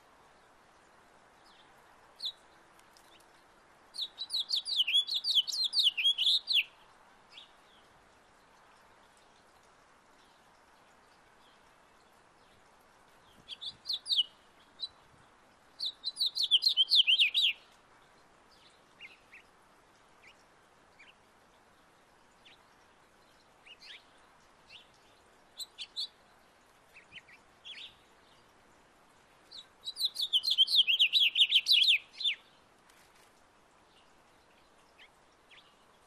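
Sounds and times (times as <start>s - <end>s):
bird chirps: 4.0s - 6.7s, 15.8s - 17.6s, 29.5s - 32.4s
finch warbling song: 29.9s - 32.4s.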